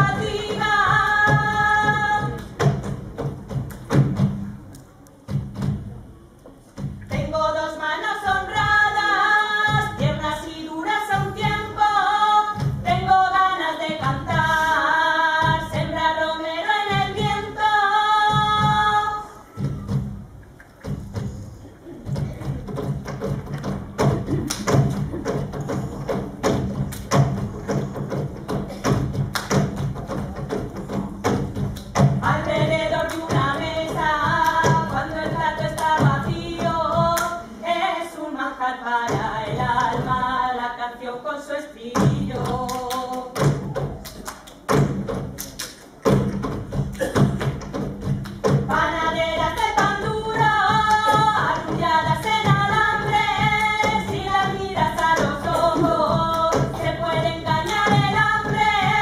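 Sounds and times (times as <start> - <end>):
thudding percussion beat: 0.0 - 4.7, 9.6 - 14.6, 18.3 - 37.3, 42.0 - 59.0.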